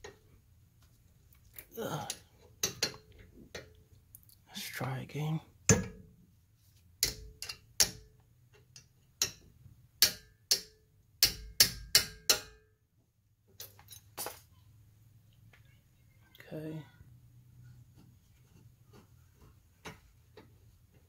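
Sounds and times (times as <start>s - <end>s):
hammer striking wrench: 10.0s - 12.6s.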